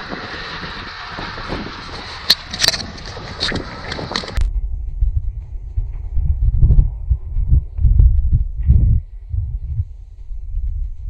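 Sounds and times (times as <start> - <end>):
low rumble: 0.0 - 11.0.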